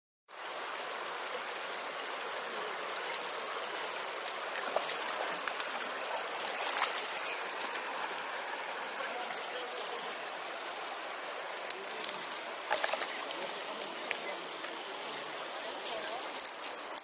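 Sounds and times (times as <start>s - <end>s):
river flowing over stones: 0.3s - 17.0s
fish splashing at surface: 4.6s - 7.9s, 11.6s - 14.3s.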